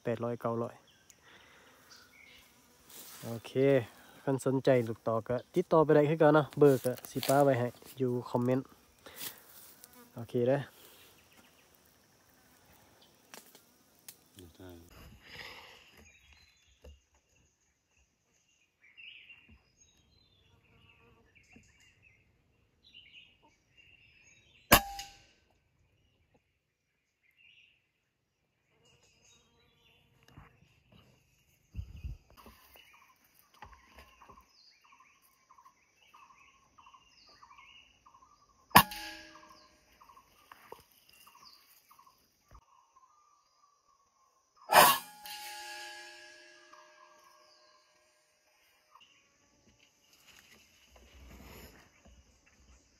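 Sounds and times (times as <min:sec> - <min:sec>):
birds chirping faintly: 0:00.0 - 0:52.9.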